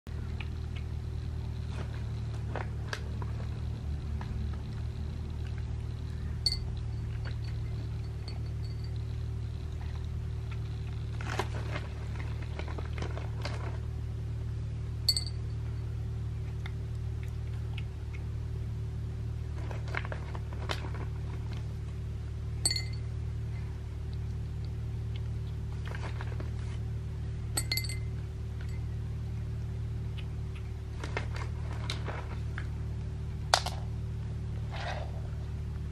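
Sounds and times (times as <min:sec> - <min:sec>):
steady low hum: 0:00.1 - 0:35.9
ceramic bowl clinking: 0:06.4 - 0:09.1, 0:15.1 - 0:15.6, 0:22.6 - 0:23.0, 0:27.6 - 0:28.1.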